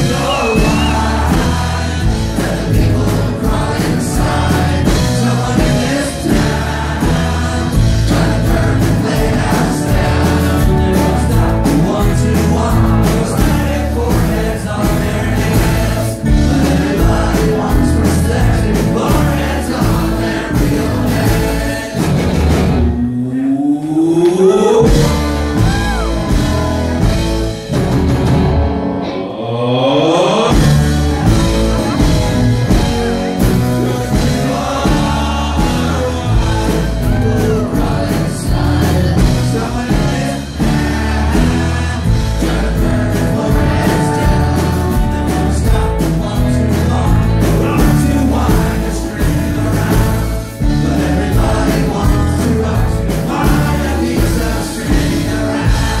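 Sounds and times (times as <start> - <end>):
man singing: 0.0 - 27.3, 29.1 - 56.0
rock band playing: 0.0 - 56.0
rising pitch glide: 22.6 - 26.4.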